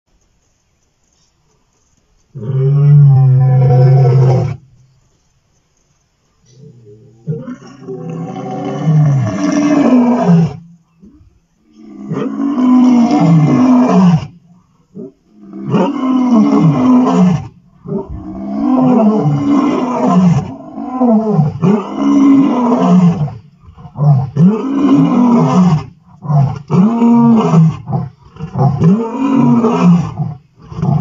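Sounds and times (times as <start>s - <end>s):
lion roaring: 6.6s - 10.6s, 11.8s - 14.3s, 15.0s - 31.0s.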